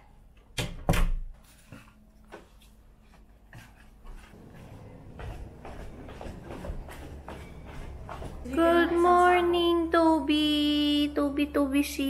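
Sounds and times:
sandal footsteps on wooden stairs: 0:03.6 - 0:08.8.

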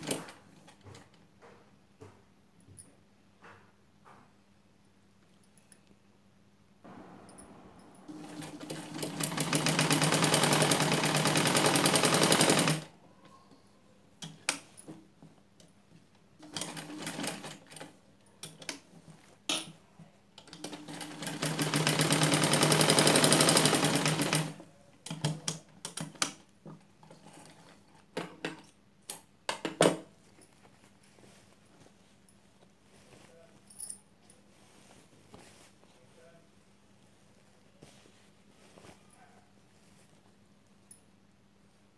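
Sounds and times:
sewing machine stitching: 0:08.1 - 0:12.9, 0:16.4 - 0:17.9, 0:20.4 - 0:25.3
rustles: 0:30.2 - 0:40.5.

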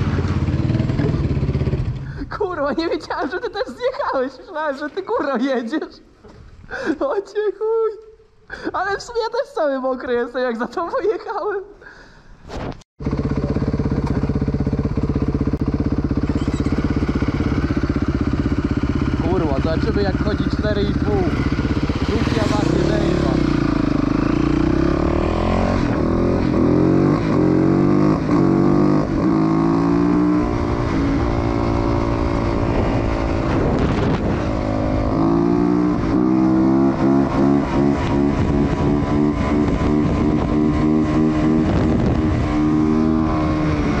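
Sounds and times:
motocross engine revving: 0:00.0 - 0:02.2, 0:13.0 - 0:44.0.

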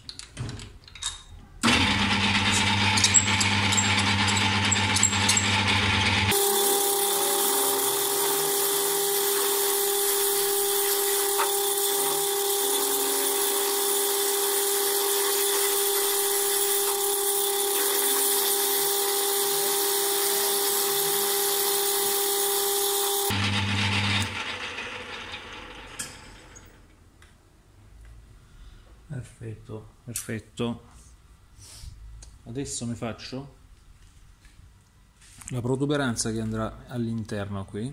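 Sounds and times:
machine whine: 0:01.6 - 0:26.7
metal lathe cutting hiss: 0:06.3 - 0:23.3.

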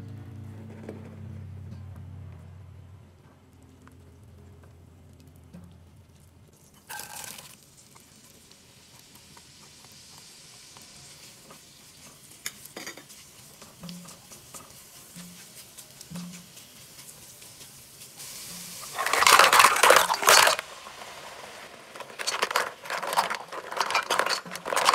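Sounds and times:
onions sizzling in butter: 0:06.6 - 0:24.9
spatula stirring and scraping pot: 0:09.6 - 0:20.7, 0:21.4 - 0:24.9.

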